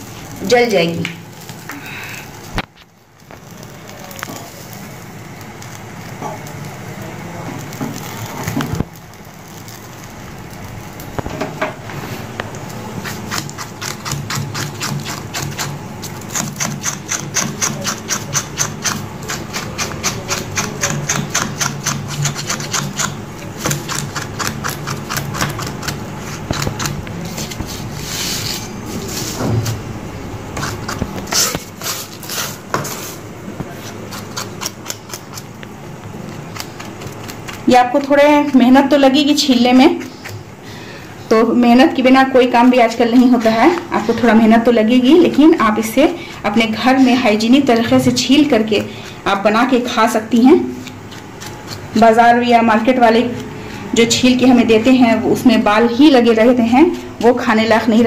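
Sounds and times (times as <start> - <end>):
knife scraping hair off skin: 13.0 - 29.3, 30.6 - 35.6, 36.3 - 37.7, 50.7 - 52.0.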